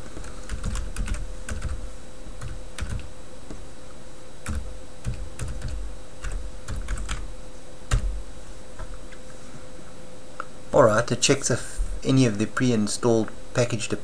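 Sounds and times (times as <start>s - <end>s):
steady hum: 0.0s - 14.0s
typing on computer keyboard: 0.5s - 1.8s, 2.4s - 3.1s, 4.5s - 7.2s.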